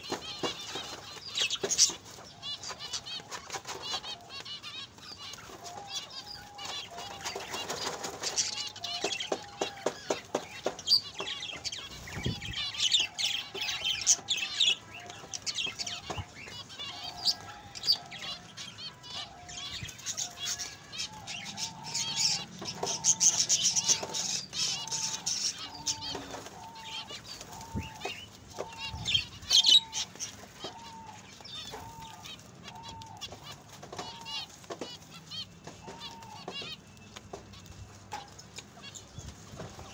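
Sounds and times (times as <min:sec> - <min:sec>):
wings flapping: 0:00.0 - 0:18.6
finches chirping: 0:19.0 - 0:33.4.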